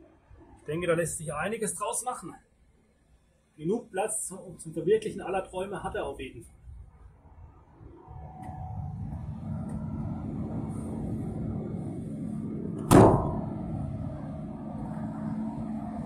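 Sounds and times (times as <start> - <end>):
low rumble with hum: 6.4 - 16.0
van door slamming: 12.8 - 13.8.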